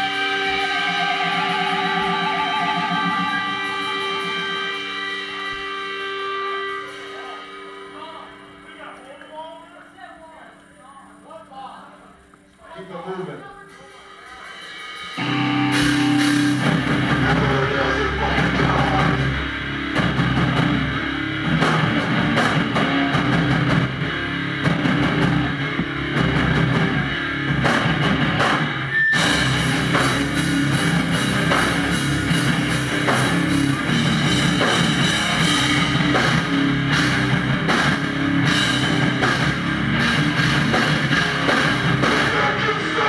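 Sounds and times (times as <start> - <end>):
pounding drum kit: 0.0 - 8.7, 13.7 - 43.0
heavy band playing live: 0.0 - 9.0, 13.7 - 43.0
electric guitars: 0.0 - 43.0.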